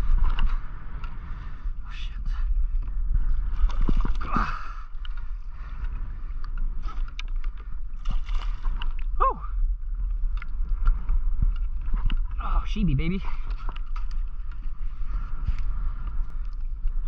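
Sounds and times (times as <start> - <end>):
wind rumble on microphone: 0.0 - 17.0
water splashing: 8.0 - 9.4.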